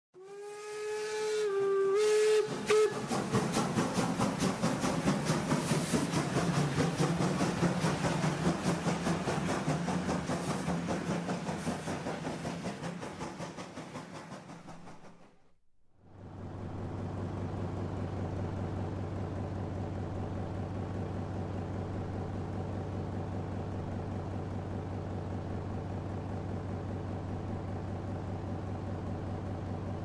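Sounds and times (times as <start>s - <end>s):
steam locomotive whistle: 0.2s - 3.5s
locomotive chuffing: 0.4s - 15.5s, 16.1s - 30.0s.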